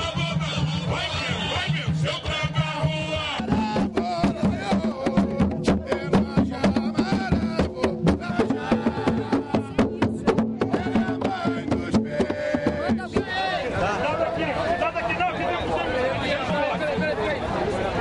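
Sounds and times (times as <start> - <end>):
group singing a chant: 0.0 - 14.0
hand drums beating: 1.6 - 13.4.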